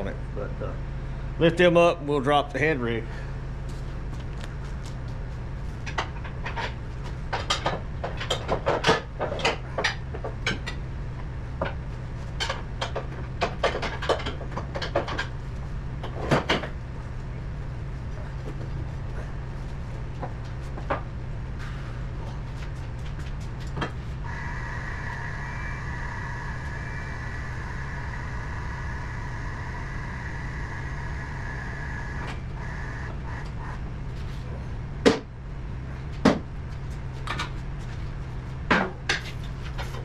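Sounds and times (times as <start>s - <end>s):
steady low hum: 0.0s - 40.0s
high-pitched whine: 23.6s - 34.9s.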